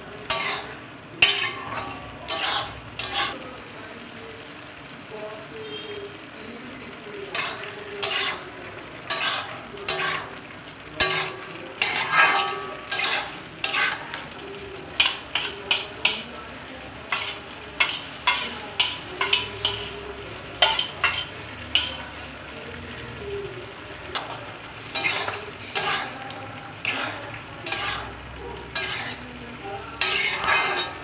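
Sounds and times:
meat and potato frying: 0:00.0 - 0:31.0
spatula scraping iron pot: 0:00.3 - 0:03.4, 0:07.3 - 0:14.2, 0:15.0 - 0:16.3, 0:17.1 - 0:20.0, 0:20.6 - 0:22.0, 0:24.1 - 0:29.4, 0:30.0 - 0:31.0.

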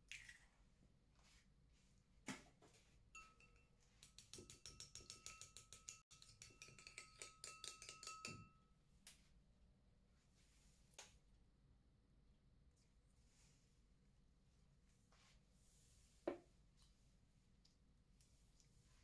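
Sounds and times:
spoon knock on bowl: 0:03.2 - 0:08.6
metal spoon clinking glass bowl: 0:03.2 - 0:08.8.

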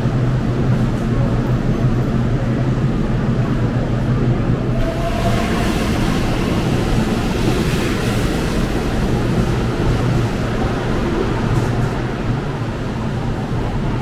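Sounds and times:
train rushing past: 0:03.5 - 0:14.0.

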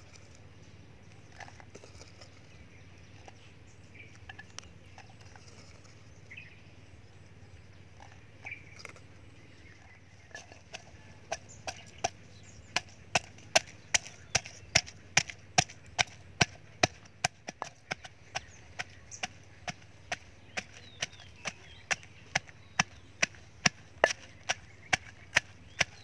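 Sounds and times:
pestle pounding in a mortar: 0:10.4 - 0:26.0.

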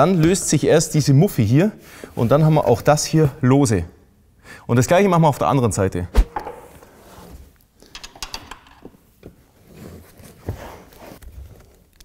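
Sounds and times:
rustling: 0:09.2 - 0:12.0.

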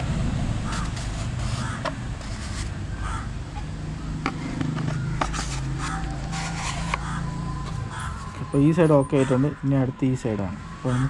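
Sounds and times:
crows cawing: 0:00.6 - 0:02.0, 0:02.9 - 0:03.4, 0:04.3 - 0:09.9, 0:10.8 - 0:11.0.

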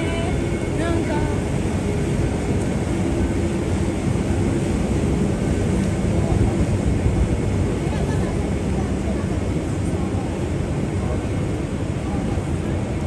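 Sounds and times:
traffic drone: 0:00.0 - 0:13.0.

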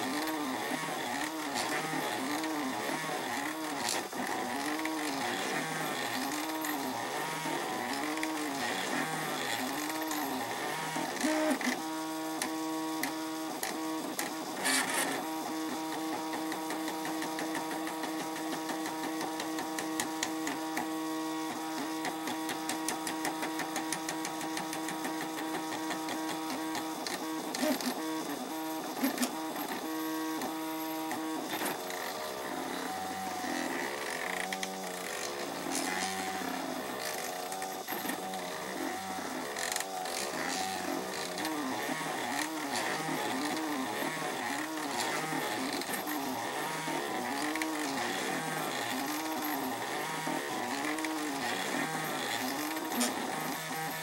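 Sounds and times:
stepper motors whining: 0:00.0 - 0:54.0.

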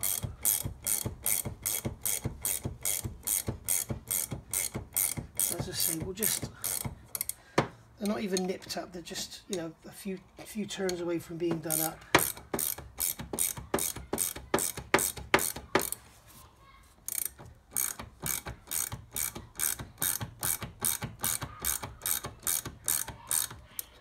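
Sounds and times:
ratchet spanner clicking: 0:00.0 - 0:07.4, 0:11.7 - 0:16.0, 0:17.0 - 0:24.0.

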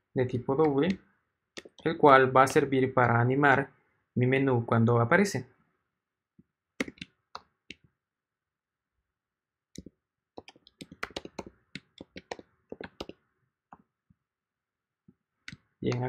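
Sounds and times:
keyboard typing: 0:01.6 - 0:02.6, 0:06.8 - 0:07.1, 0:09.8 - 0:13.2.

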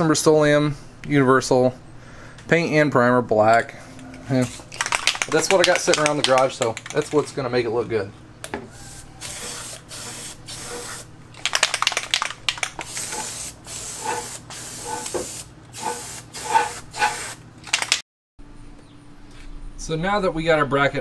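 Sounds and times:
aerosol spray hissing: 0:08.8 - 0:11.1, 0:12.8 - 0:17.4.

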